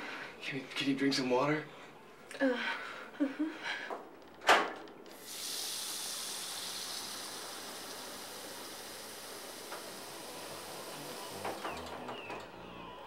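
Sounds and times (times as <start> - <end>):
kitchen tap water running: 5.1 - 11.9.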